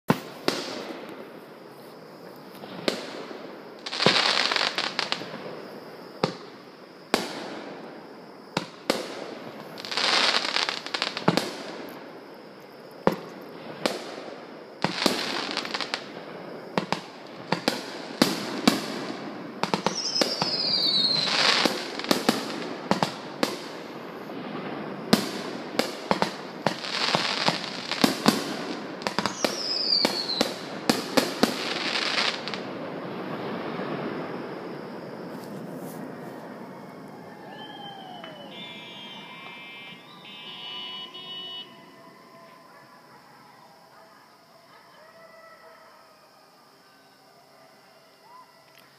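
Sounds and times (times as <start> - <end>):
fireworks bursting with bangs: 0.1 - 42.2
fireworks crackling: 0.1 - 42.6
falling firework whistle: 8.5 - 12.0, 14.8 - 43.2.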